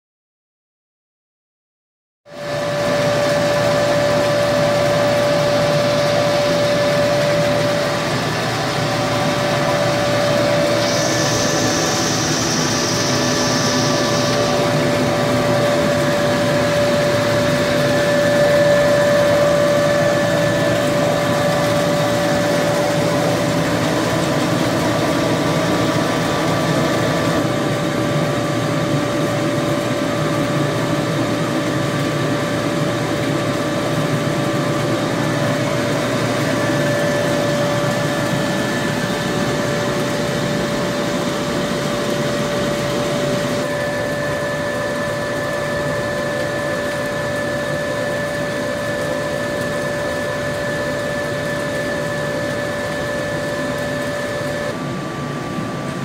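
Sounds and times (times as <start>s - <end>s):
machine humming: 2.3s - 56.0s
high hiss: 9.3s - 17.1s.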